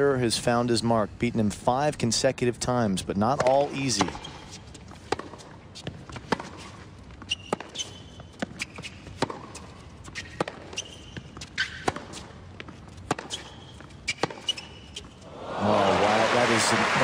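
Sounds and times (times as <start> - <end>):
shoes squeaking on court: 3.3 - 15.3
racket striking tennis ball: 3.4 - 4.4, 5.1 - 15.2.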